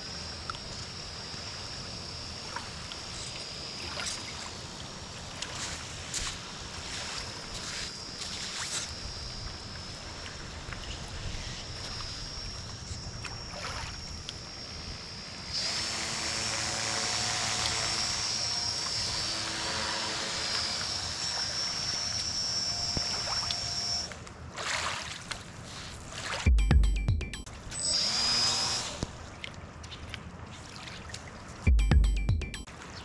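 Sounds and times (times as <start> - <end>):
lower hum: 0.0 - 24.2
model boat motor whining: 0.0 - 24.2, 27.8 - 29.1.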